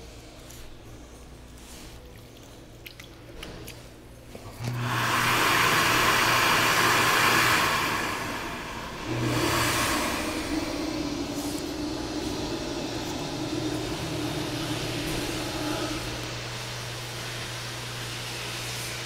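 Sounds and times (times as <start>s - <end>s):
hand dryer blowing air: 4.5s - 19.0s.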